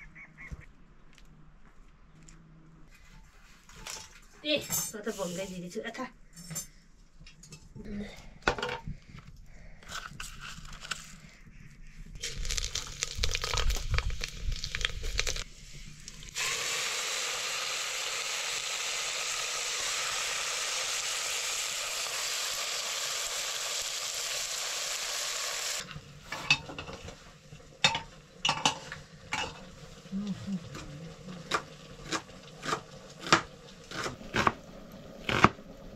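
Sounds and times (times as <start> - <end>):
food sizzling in hot oil: 12.2 - 15.5, 16.1 - 30.2
metal pots and utensils clinking: 26.3 - 27.2, 27.8 - 29.7.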